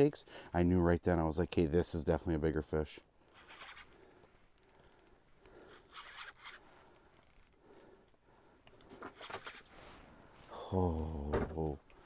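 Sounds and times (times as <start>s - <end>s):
fishing reel clicking: 2.9s - 7.9s
fishing reel whirring: 3.3s - 7.9s, 9.1s - 9.7s.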